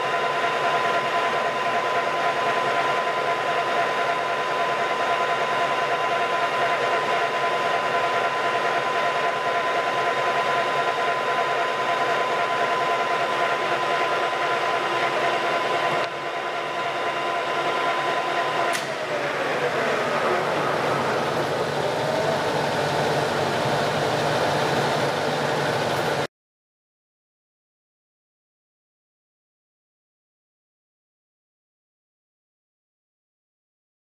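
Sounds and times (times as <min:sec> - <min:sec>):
lathe whining: 0:00.0 - 0:26.3.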